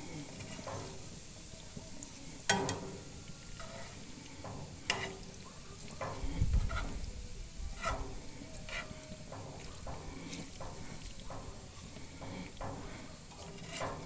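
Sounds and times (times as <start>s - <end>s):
faint butter sizzle: 0.0s - 14.0s
spatula scraping frying pan: 0.0s - 14.0s
knocks on pan: 2.5s - 3.0s.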